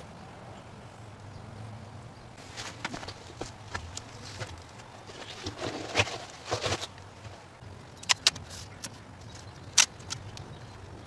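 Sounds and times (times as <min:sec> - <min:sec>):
rustling and scraping: 0:02.4 - 0:10.2.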